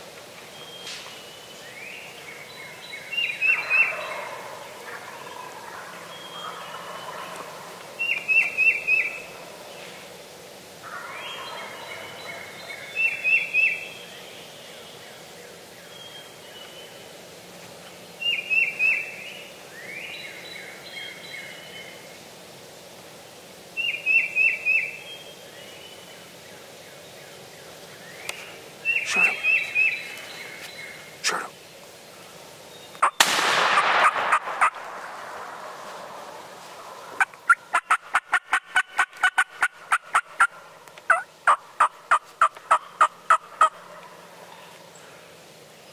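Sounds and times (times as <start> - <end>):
turkeys gobbling: 3.4 - 9.5, 10.8 - 13.7, 33.0 - 44.8.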